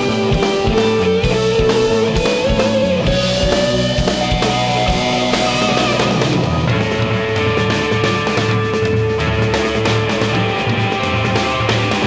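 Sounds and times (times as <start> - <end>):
bass guitar: 0.0 - 12.0
drum kit: 0.0 - 12.0
electric guitar lead: 0.0 - 12.0.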